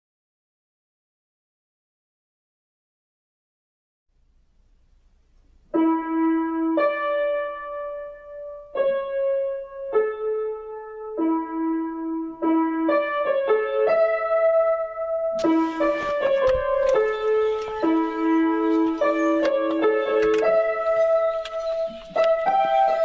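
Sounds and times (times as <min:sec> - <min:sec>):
piano improvisation: 0:05.7 - 0:23.0.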